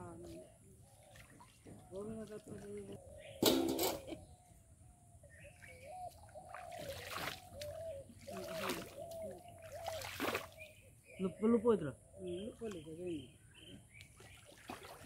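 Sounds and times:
water trickling: 0.8s - 3.2s, 5.5s - 10.8s
water splashing: 5.7s - 10.7s, 14.1s - 15.0s.

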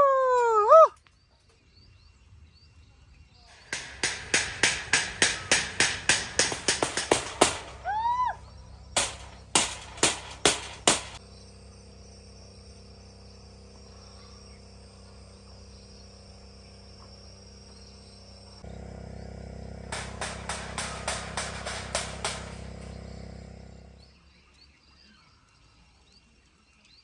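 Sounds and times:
insects chorus: 0.0s - 27.0s
banging on corrugated metal sheet: 3.5s - 11.2s, 19.8s - 24.0s.

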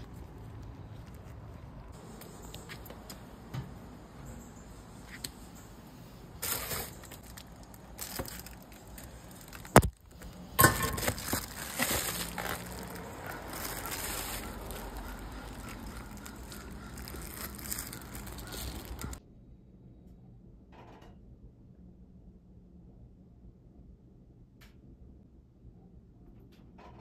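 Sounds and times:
plastic mailer crinkling: 6.4s - 19.2s.

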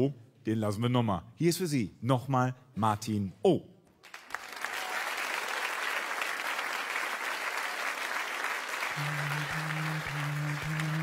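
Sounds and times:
audience applauding: 4.0s - 11.0s
low hummed vocal note: 9.0s - 11.0s.

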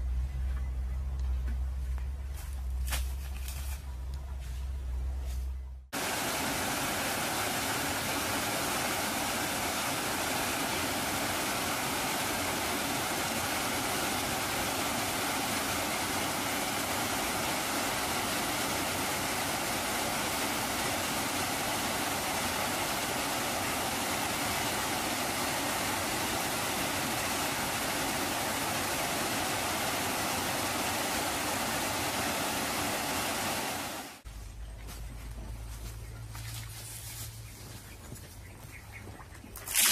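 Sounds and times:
running water rushing: 6.0s - 34.2s, 39.6s - 39.9s.

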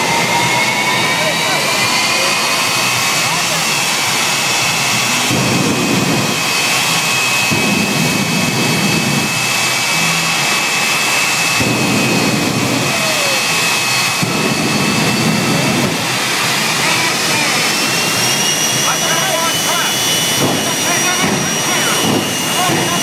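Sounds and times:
jet engines whining: 0.0s - 23.0s
rumbling engine surges: 0.0s - 23.0s.

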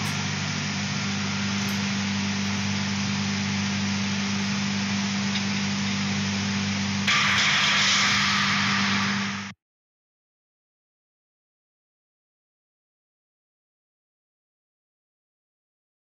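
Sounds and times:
machine hiss: 0.0s - 9.5s
machine hum: 0.0s - 9.6s.

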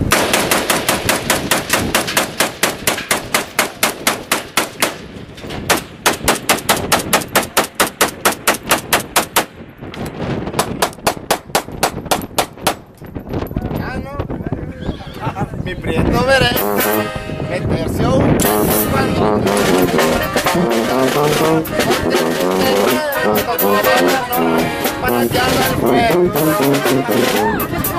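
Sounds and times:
rapid sharp bangs: 0.0s - 9.6s, 10.5s - 13.0s, 18.4s - 25.0s.

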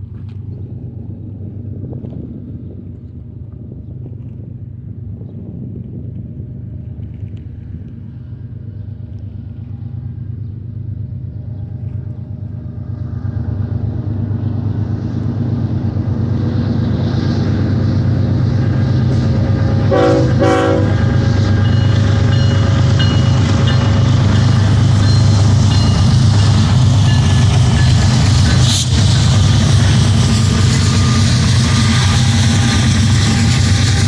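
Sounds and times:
diesel locomotive engine drone: 0.0s - 34.0s
locomotive horn blasts: 19.8s - 21.2s.

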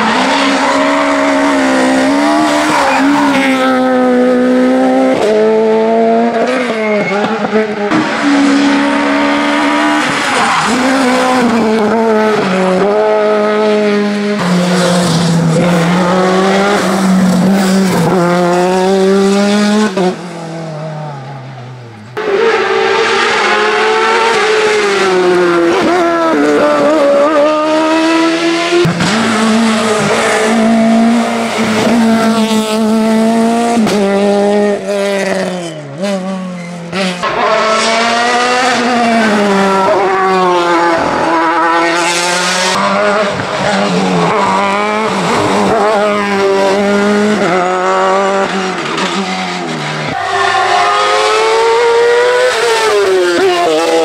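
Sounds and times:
tyre squeal: 0.0s - 3.6s, 6.6s - 7.5s, 50.1s - 51.7s
racing car engines revving: 0.0s - 54.0s.

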